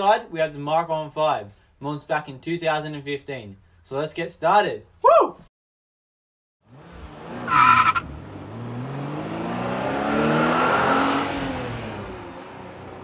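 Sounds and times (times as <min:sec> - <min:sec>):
car engine revving: 0:06.6 - 0:13.0
tyre screech: 0:07.4 - 0:08.1.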